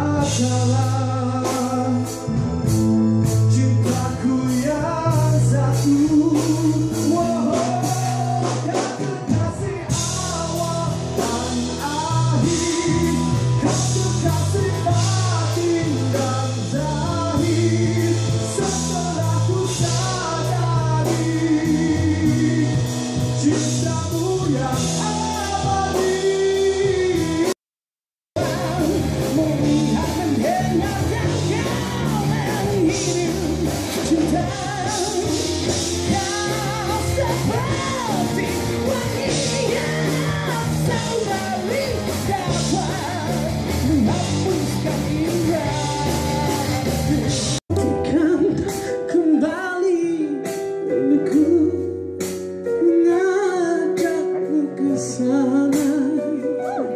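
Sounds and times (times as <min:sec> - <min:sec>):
person singing into a microphone: 0:00.0 - 0:27.6, 0:28.4 - 0:56.9
band playing pop-rock: 0:00.0 - 0:27.7, 0:28.3 - 0:56.9.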